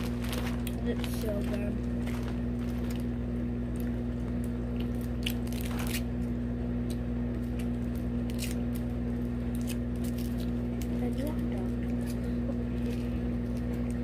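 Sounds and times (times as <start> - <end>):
candy wrapper crinkling: 0.0 - 6.2
candy being chewed: 0.0 - 14.0
low electrical hum: 0.0 - 14.0.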